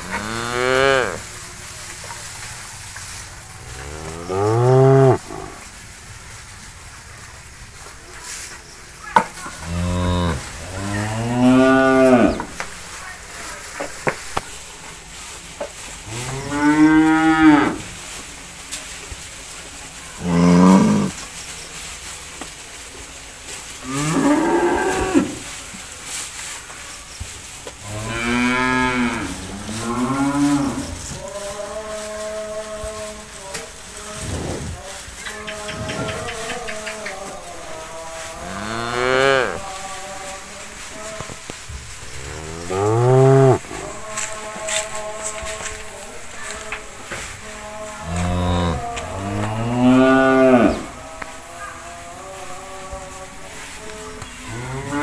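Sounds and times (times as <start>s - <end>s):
cow mooing: 0.0s - 1.3s, 3.6s - 5.6s, 9.5s - 12.5s, 16.1s - 17.9s, 27.9s - 31.2s, 42.2s - 44.3s, 48.0s - 50.9s
low background noise: 0.0s - 55.0s.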